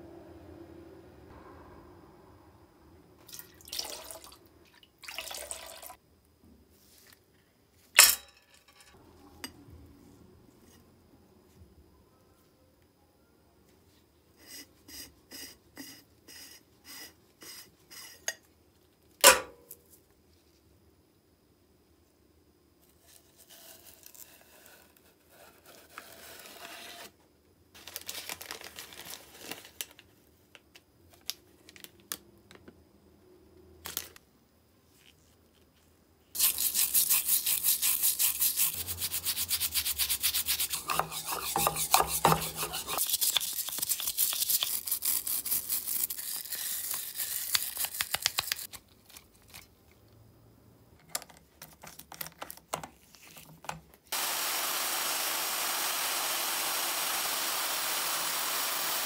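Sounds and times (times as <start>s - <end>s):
handling and rustling: 27.8s - 32.1s
brush scrubbing in water: 36.4s - 46.2s.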